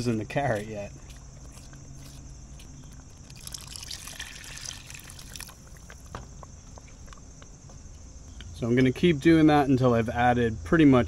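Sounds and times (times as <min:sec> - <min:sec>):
liquid trickling into a pot: 0:03.2 - 0:06.1.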